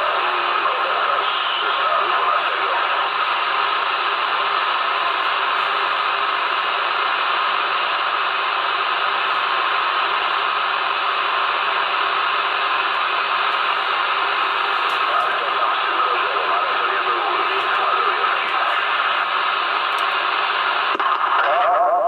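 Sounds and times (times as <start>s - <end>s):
faint radio voice: 0.0s - 3.6s, 14.8s - 19.6s, 21.2s - 22.0s
radio receiver hiss: 0.0s - 22.0s.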